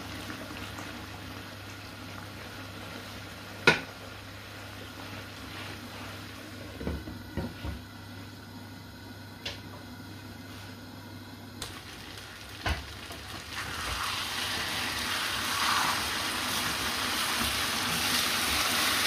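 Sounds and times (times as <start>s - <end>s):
pot of stock simmering: 0.0s - 6.8s.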